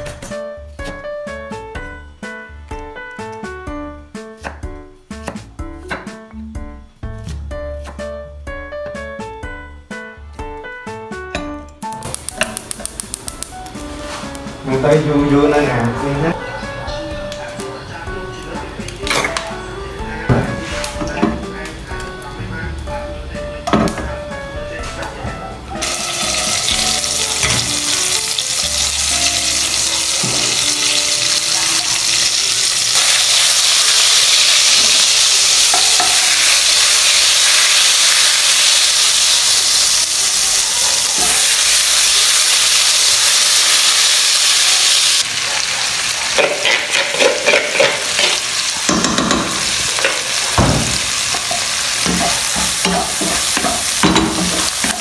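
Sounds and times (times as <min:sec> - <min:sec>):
hot oil sizzling in a wok: 0:12.0 - 0:16.2, 0:25.8 - 0:55.0
spatula scraping a pan: 0:45.4 - 0:48.4.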